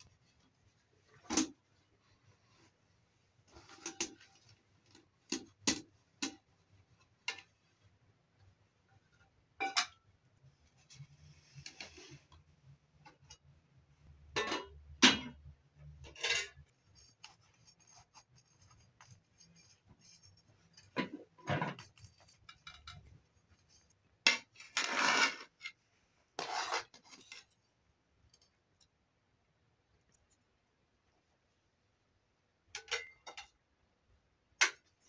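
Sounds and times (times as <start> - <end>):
metal kitchenware clinking and scraping: 9.6 - 10.0, 14.3 - 15.4, 16.0 - 16.7, 32.8 - 33.5
metal skimmer scraping rice crust: 24.8 - 25.6, 26.4 - 27.4.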